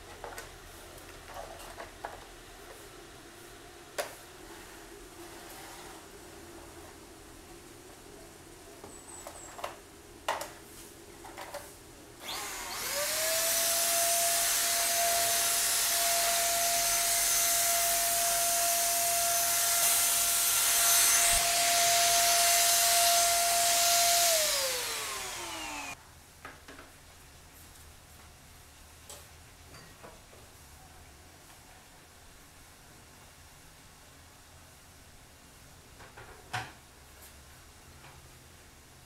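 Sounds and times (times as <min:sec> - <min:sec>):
vacuum cleaner whining: 0:12.2 - 0:26.0.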